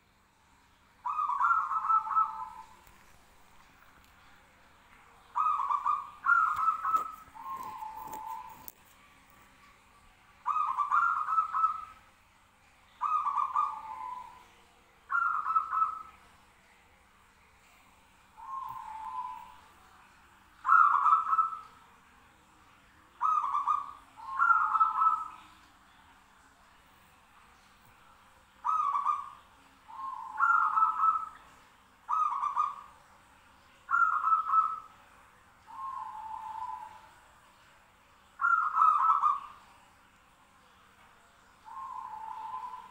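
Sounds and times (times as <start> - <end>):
doves cooing: 1.0 - 3.0, 5.3 - 8.8, 10.4 - 12.0, 13.0 - 14.4, 15.1 - 16.2, 18.4 - 19.7, 20.6 - 21.7, 23.2 - 25.5, 28.6 - 31.4, 32.1 - 32.9, 33.9 - 34.9, 35.7 - 37.1, 38.4 - 39.6, 41.7 - 42.9.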